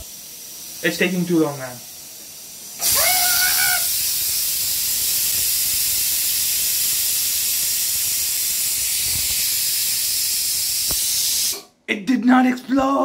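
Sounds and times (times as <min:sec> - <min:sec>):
pressure cooker whistle hissing: 0:02.8 - 0:11.7.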